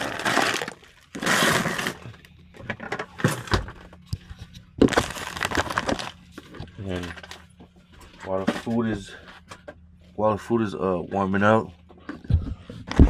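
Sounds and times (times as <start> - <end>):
plastic pouch crinkling: 0.0 - 2.1, 4.8 - 6.2.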